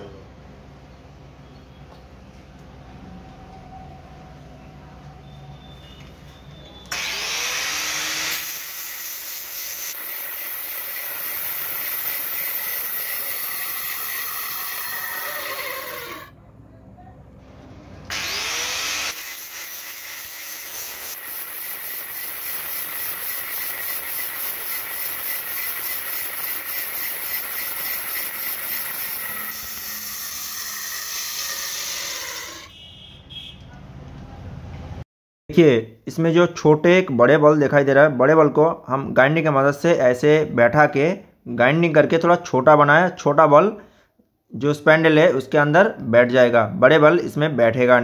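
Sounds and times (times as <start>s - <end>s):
angle grinder grinding: 6.9s - 16.3s, 18.1s - 32.7s.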